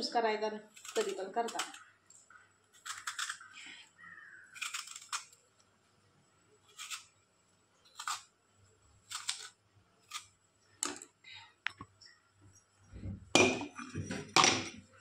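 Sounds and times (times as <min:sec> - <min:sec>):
peeler blade scraping apple skin: 0:00.7 - 0:01.8, 0:02.7 - 0:03.5, 0:04.5 - 0:05.4, 0:06.7 - 0:07.1, 0:07.9 - 0:08.3, 0:09.1 - 0:10.3.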